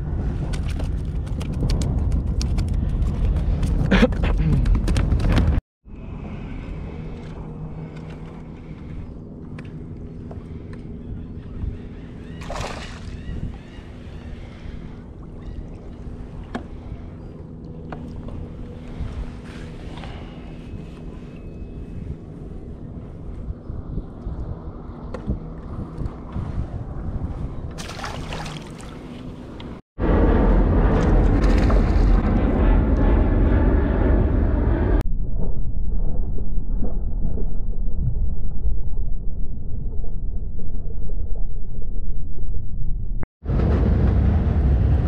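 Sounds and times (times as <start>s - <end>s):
wind buffeting microphone: 0.0s - 39.0s
steady low hum: 0.0s - 45.0s
fish splashing at the surface: 12.4s - 13.2s, 27.8s - 29.1s.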